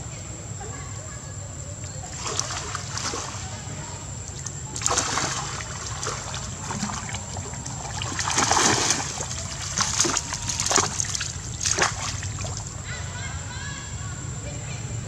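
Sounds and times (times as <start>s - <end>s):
water splashing: 2.0s - 13.0s.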